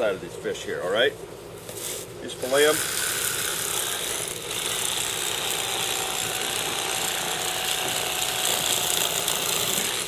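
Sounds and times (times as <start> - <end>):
electric fillet knife running: 2.4 - 10.0.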